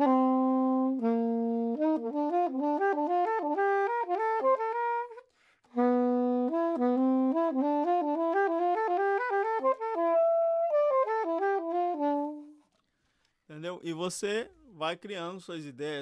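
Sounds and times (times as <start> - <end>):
soprano saxophone: 0.0 - 12.8.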